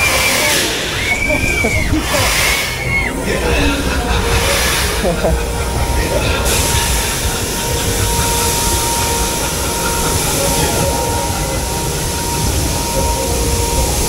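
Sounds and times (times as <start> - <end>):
faint high whine: 0.0 - 14.0
machinery rumble and hiss: 0.0 - 14.0.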